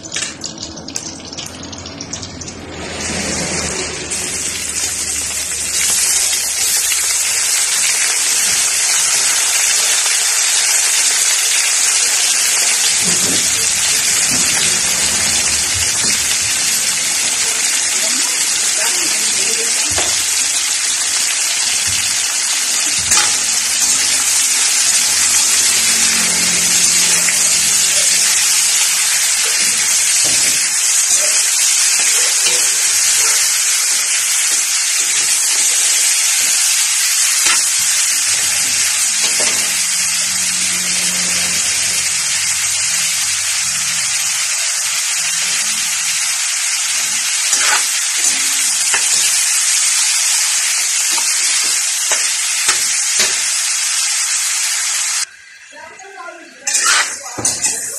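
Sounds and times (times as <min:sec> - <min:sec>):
chicken sizzling in a wok: 0:00.0 - 0:57.9
spatula knocking and scraping pan: 0:47.5 - 0:49.2.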